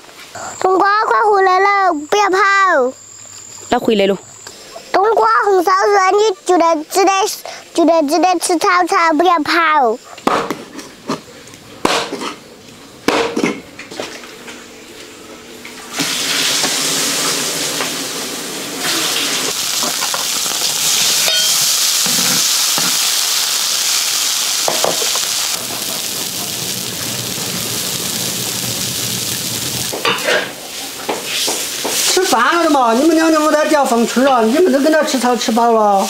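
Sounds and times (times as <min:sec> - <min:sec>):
food sizzling in hot oil: 0:15.9 - 0:36.0
wok being stirred: 0:18.8 - 0:33.3.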